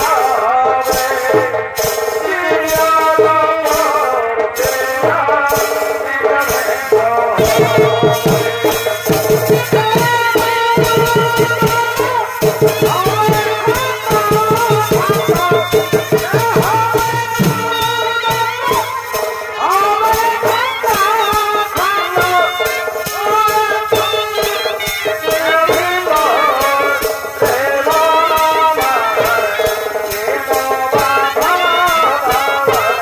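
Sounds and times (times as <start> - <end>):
fast drumming: 0.0 - 33.0
wavering reed-pipe melody: 7.4 - 20.1.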